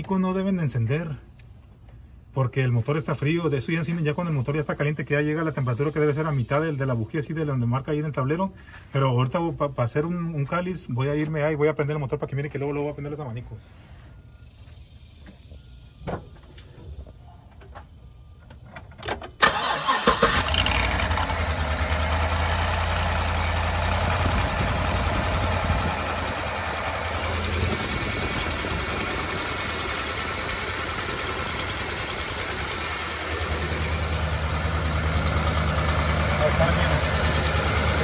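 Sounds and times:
truck engine cranking and idling: 18.8s - 38.0s
deep steady hum: 20.9s - 38.0s.

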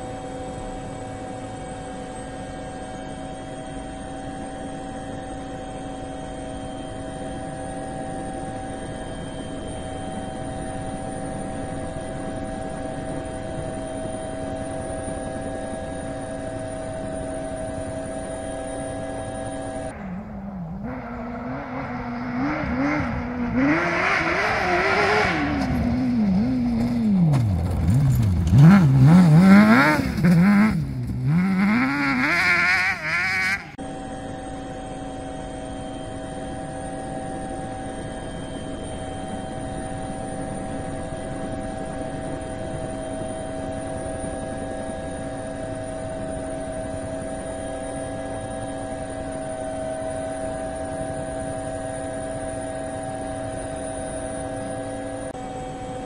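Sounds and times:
drone propellers humming: 0.0s - 56.0s
engine revving: 19.2s - 33.8s.

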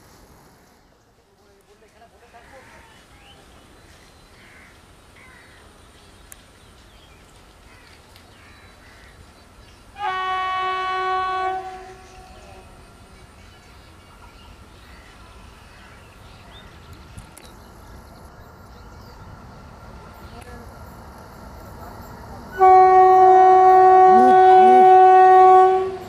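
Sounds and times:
faint train rumble: 0.0s - 26.0s
locomotive horn blast: 10.0s - 12.6s, 22.6s - 26.0s.

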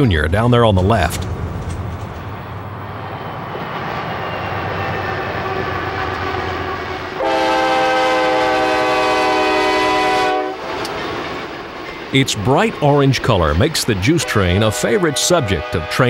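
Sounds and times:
locomotive air horn blast: 5.0s - 10.9s, 14.2s - 16.0s.

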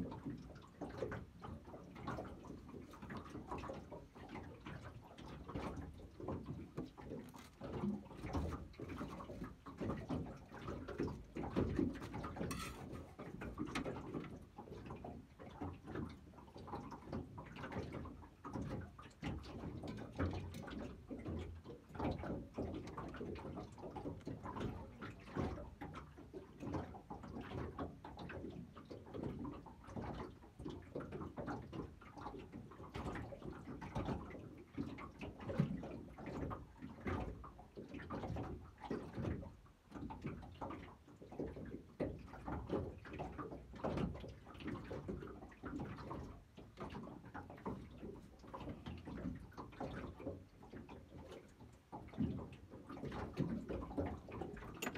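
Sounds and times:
water lapping against boat hull: 0.0s - 54.9s.

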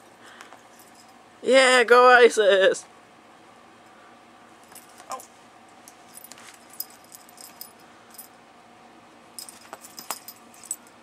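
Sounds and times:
collar jingling: 0.7s - 1.2s, 6.1s - 8.3s, 9.4s - 11.0s.

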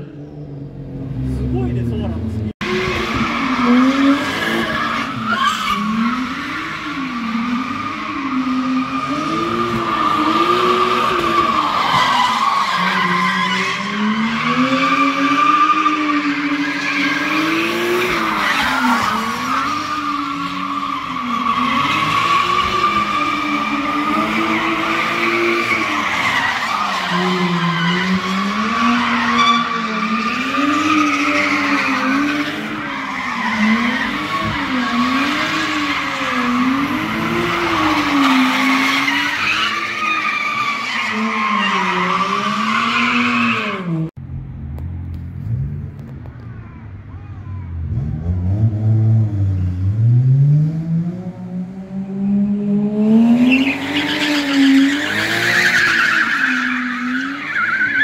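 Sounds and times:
car engines revving: 0.0s - 58.0s
tire squeal: 2.6s - 44.0s, 53.3s - 58.0s.

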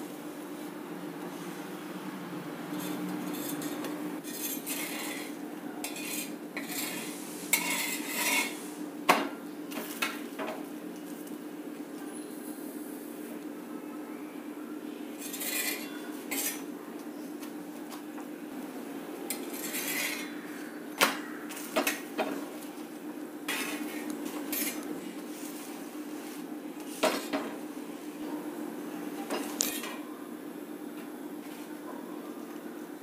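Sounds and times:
spatula scraping on griddle: 2.7s - 8.8s, 15.2s - 16.7s, 19.3s - 20.5s, 23.5s - 27.4s.

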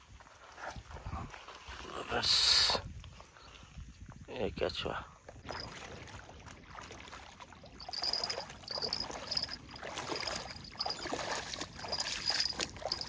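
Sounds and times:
water sloshing around wading legs: 5.4s - 13.0s.

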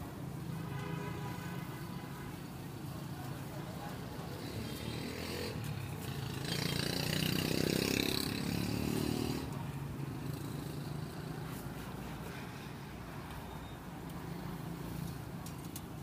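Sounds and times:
motorbike engine passing: 4.2s - 11.5s.

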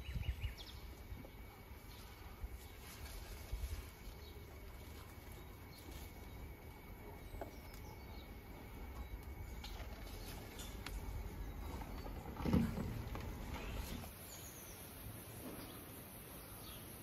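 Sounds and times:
wind on microphone: 0.0s - 0.6s
tree leaves and branches rustling: 0.0s - 16.8s.

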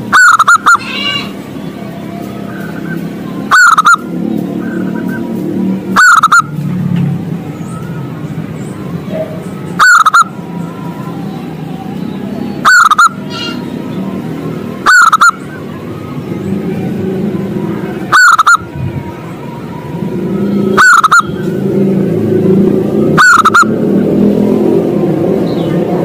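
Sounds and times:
dove cooing: 0.0s - 1.3s, 2.5s - 4.0s, 5.9s - 6.5s, 9.1s - 10.3s, 12.6s - 13.6s, 14.8s - 15.6s, 18.1s - 18.6s, 20.3s - 21.6s, 22.9s - 24.0s.

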